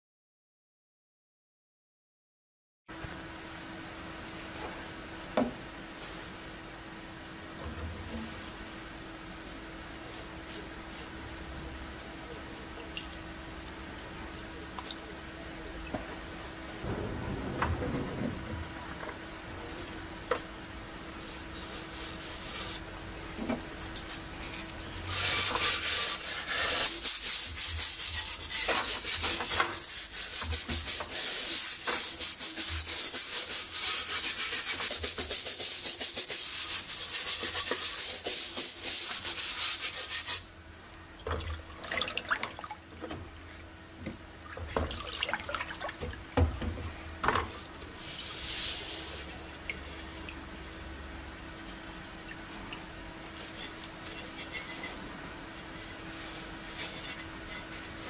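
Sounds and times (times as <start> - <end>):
sponge scrubbing metal: 21.0 - 22.9, 23.8 - 40.5, 48.0 - 52.0, 53.4 - 58.0.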